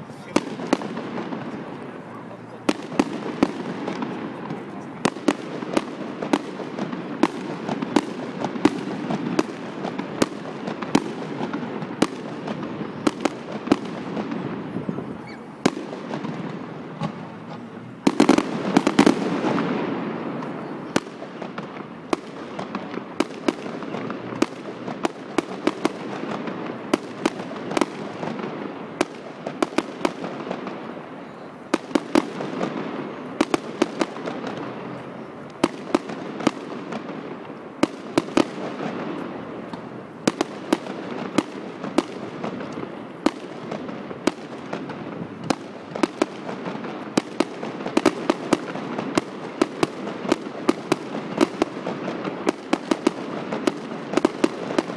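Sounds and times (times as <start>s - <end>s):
fireworks bangs: 0.0s - 54.9s
fireworks crackling: 0.0s - 54.9s.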